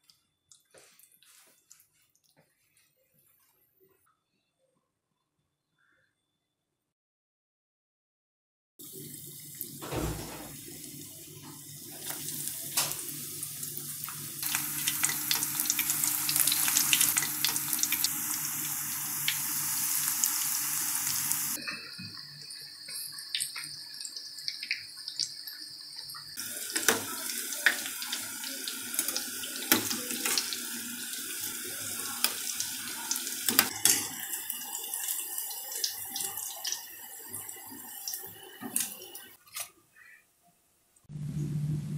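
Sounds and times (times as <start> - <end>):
deep-frying sizzle and pops: 11.4 - 39.0.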